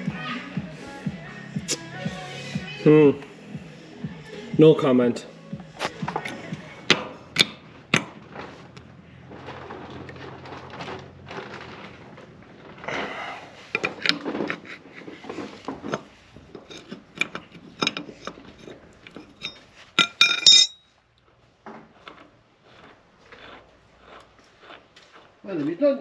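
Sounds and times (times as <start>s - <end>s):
spanner clinking on metal nut: 15.9s - 20.8s.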